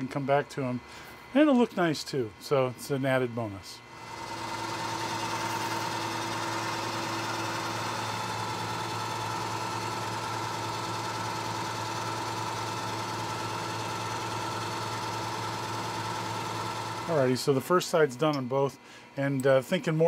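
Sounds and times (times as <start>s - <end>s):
milling machine cutting metal: 3.8s - 17.4s.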